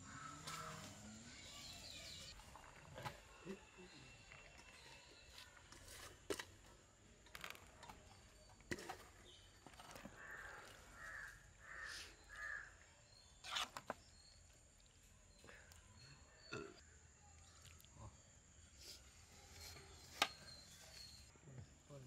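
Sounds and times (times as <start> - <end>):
crow cawing faintly: 0.0 - 0.9, 9.9 - 12.8.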